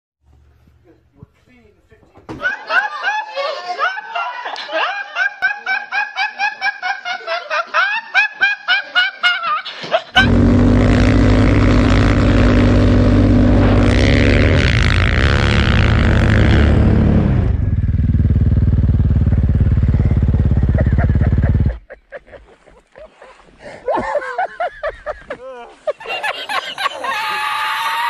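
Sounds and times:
young man laughing: 2.4s - 10.5s, 20.4s - 27.9s
snowmobile engine at high revs: 10.2s - 21.8s.

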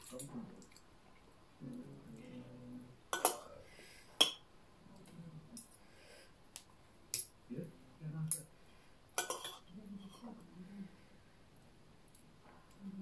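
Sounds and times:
cutlery clinking on plates: 3.1s - 3.5s, 9.2s - 10.3s.

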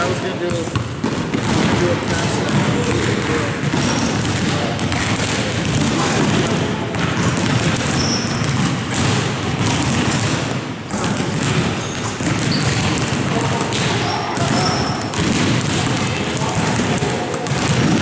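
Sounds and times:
basketballs dribbled on hardwood floor: 0.0s - 18.0s.

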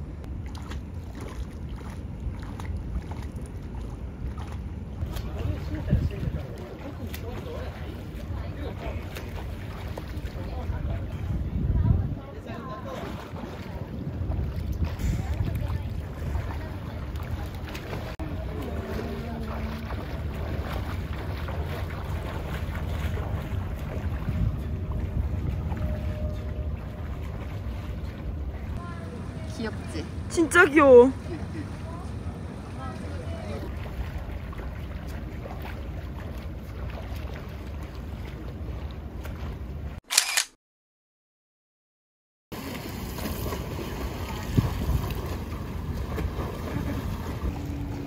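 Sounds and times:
water sloshing: 0.0s - 40.0s, 42.6s - 48.0s
wind buffeting on microphone: 1.2s - 6.8s, 9.8s - 18.2s, 19.9s - 28.8s, 43.7s - 48.0s
camera shutter double click: 40.1s - 40.6s.

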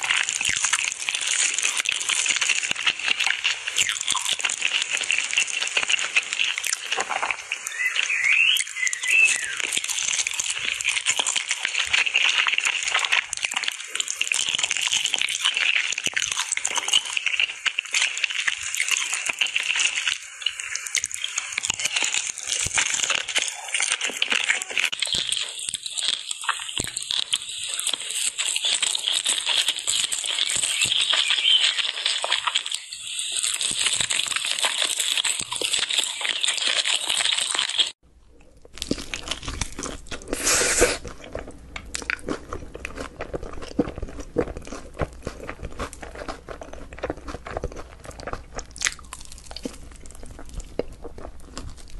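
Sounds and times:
close chewing crunches: 0.0s - 51.9s.

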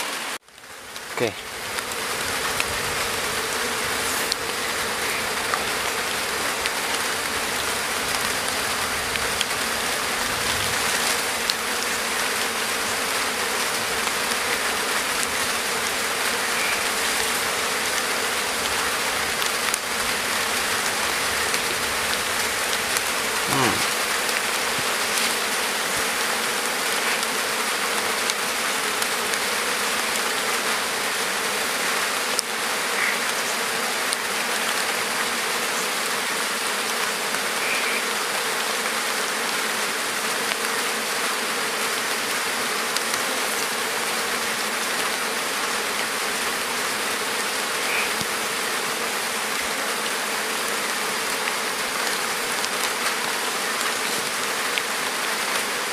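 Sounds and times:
honeybees buzzing: 0.0s - 55.9s.

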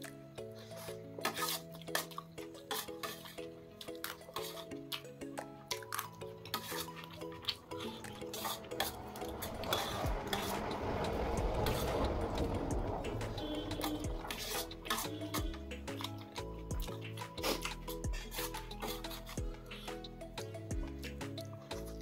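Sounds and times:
background music: 0.0s - 22.0s
fork scraping a steel plate: 0.5s - 4.8s, 5.9s - 10.8s, 11.6s - 16.1s, 17.2s - 19.9s
steady rustling: 6.6s - 14.9s.

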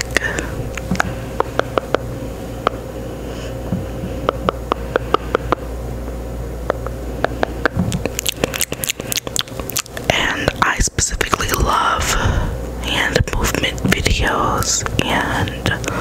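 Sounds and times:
wet mouth clicks and smacks: 0.0s - 2.0s, 6.7s - 10.7s
low room hum: 0.0s - 16.0s.

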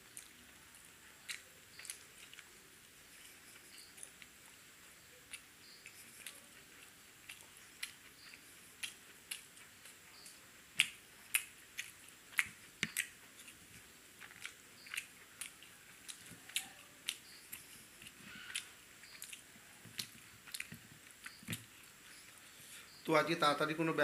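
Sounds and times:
person chewing food: 0.0s - 23.0s
mouth clicks and smacks: 7.2s - 13.6s, 14.2s - 21.9s.

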